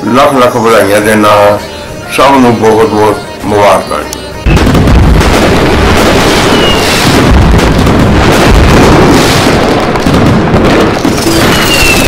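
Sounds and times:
firework falling whistle: 0:04.4 - 0:07.4, 0:11.1 - 0:12.0
fireworks crackling and booming: 0:04.4 - 0:12.0.

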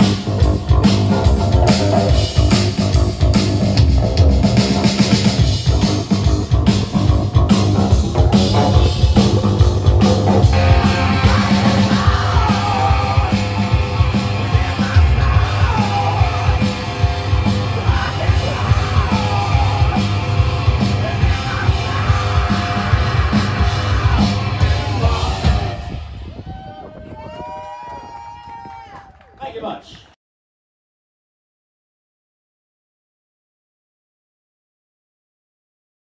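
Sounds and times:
rock band playing: 0:00.0 - 0:26.2
male lead vocal: 0:10.5 - 0:26.0.

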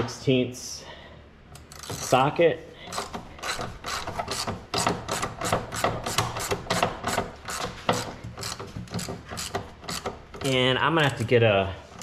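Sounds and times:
ratchet pawl clicking: 0:01.6 - 0:02.2, 0:02.9 - 0:11.2.

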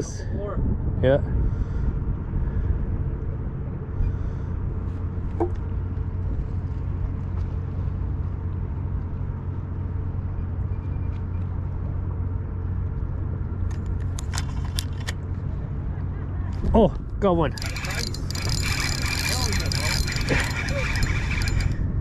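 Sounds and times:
boat motor running: 0:02.1 - 0:22.0
clicks and rattles: 0:17.5 - 0:21.8.

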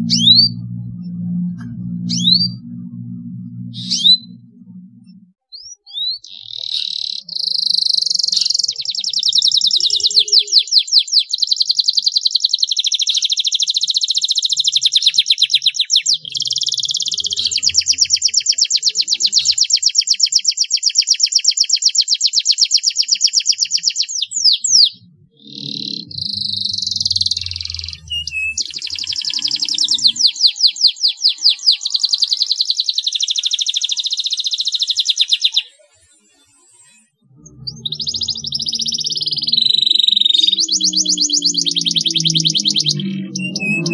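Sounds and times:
canary trilling song: 0:00.0 - 0:43.9.

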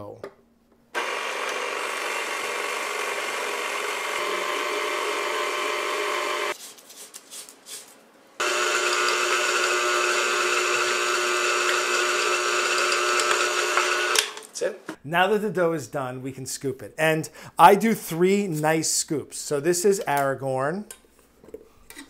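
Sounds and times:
electric mixer whining: 0:01.0 - 0:06.6, 0:08.4 - 0:14.4.

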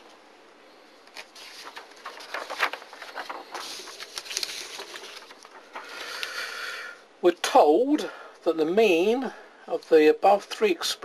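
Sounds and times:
paper rustling and sliding: 0:01.0 - 0:06.4.

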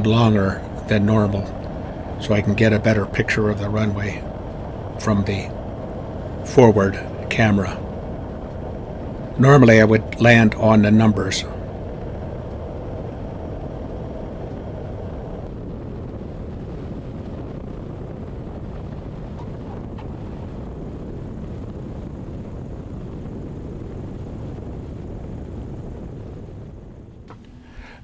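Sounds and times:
airflow rushing: 0:00.0 - 0:15.5, 0:27.3 - 0:28.0
airplane engine: 0:00.0 - 0:24.4, 0:26.2 - 0:28.0.

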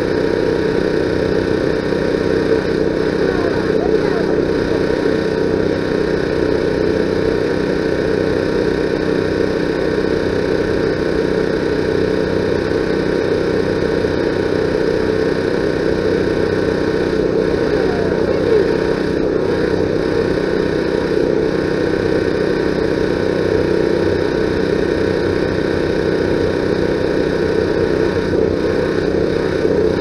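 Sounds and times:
steady mechanical hum: 0:00.0 - 0:30.0.

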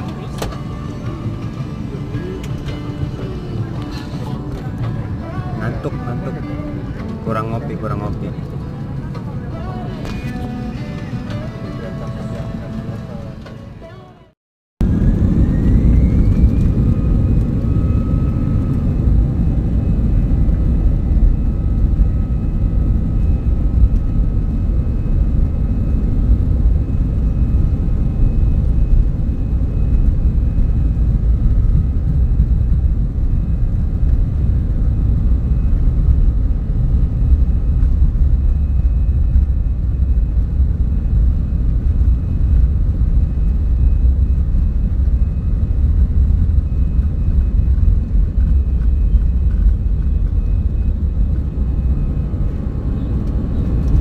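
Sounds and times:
jet engines rumbling and whining: 0:00.0 - 0:54.0.

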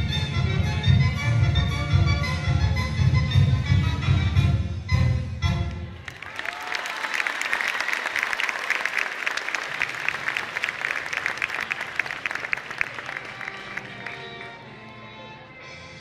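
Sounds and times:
crowd clapping: 0:06.0 - 0:14.9.

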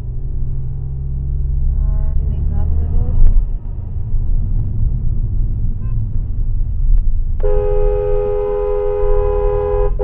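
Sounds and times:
road and engine rumble: 0:00.0 - 0:10.0
car horn long blast: 0:07.4 - 0:10.0.

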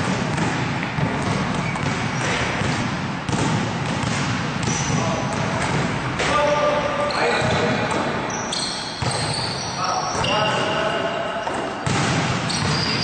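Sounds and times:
basketballs bouncing on gym floor: 0:00.0 - 0:13.0
short pitched squeak: 0:08.3 - 0:11.2, 0:12.5 - 0:13.0.

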